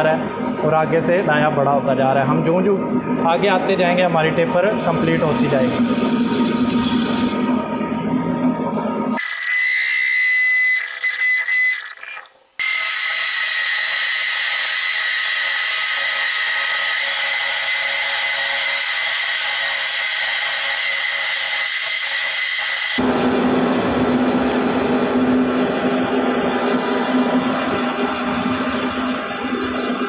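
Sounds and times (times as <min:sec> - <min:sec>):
metal lathe whining: 0:03.9 - 0:07.8, 0:09.2 - 0:24.0.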